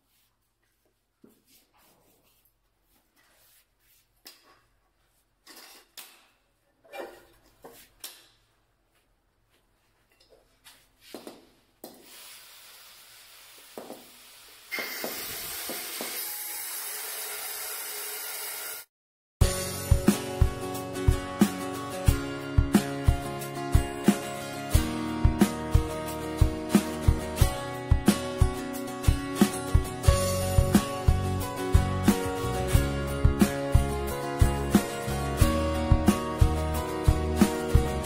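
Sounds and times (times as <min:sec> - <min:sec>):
steady hiss: 0:11.8 - 0:15.5.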